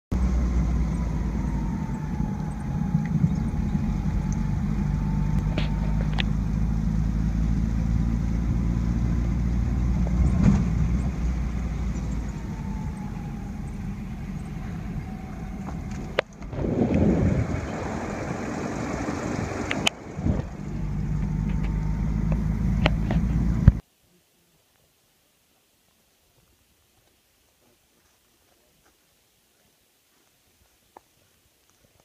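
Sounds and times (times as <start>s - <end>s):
engine and road rumble: 0.0s - 23.9s
rushing noise: 0.1s - 23.8s.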